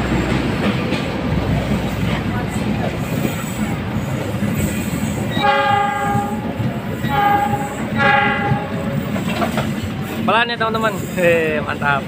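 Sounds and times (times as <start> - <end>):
train carriages rumbling past: 0.0 - 12.0
train horn blasts: 5.3 - 8.9.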